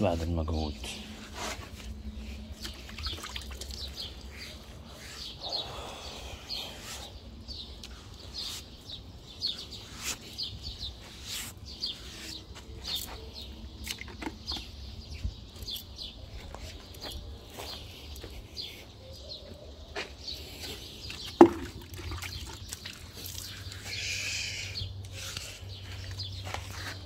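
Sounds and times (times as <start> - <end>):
small birds chirping: 0.0 - 27.0
wet sponge splashing and dripping: 2.6 - 4.6, 21.2 - 23.9.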